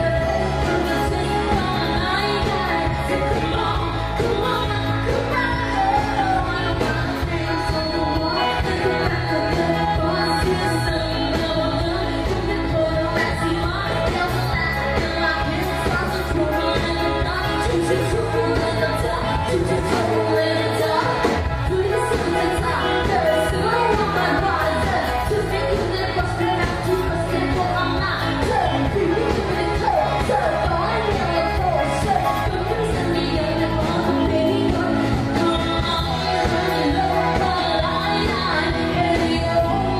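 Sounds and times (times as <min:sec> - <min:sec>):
pop-rock band playing: 0:00.0 - 0:39.9
woman singing: 0:00.0 - 0:39.9.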